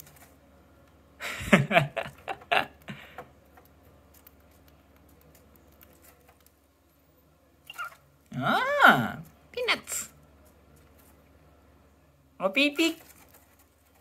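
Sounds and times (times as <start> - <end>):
bird beak tapping and rustling seed: 0.0 - 1.0, 2.1 - 6.7, 10.3 - 11.4, 12.8 - 14.0.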